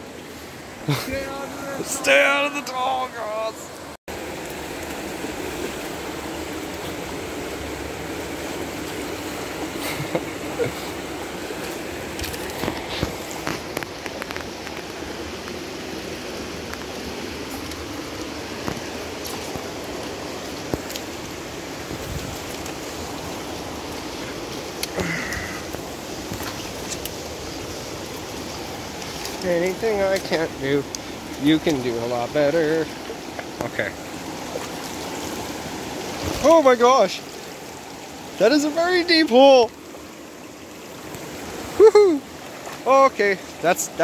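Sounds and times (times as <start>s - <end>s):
water rushing over stones: 0.0s - 44.0s.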